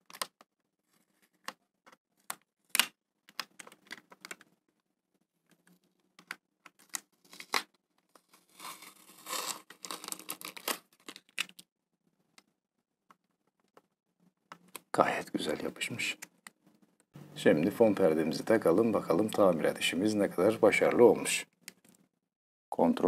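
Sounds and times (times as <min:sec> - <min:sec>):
tape peeling: 0:08.3 - 0:11.6.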